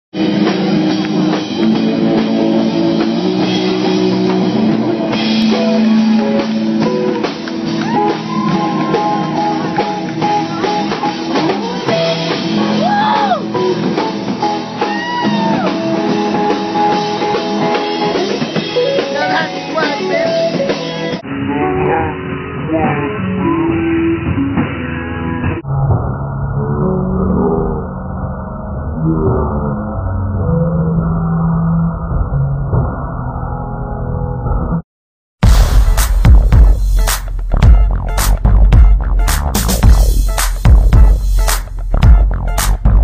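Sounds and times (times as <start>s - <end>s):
rock band playing live: 0.2s - 21.2s.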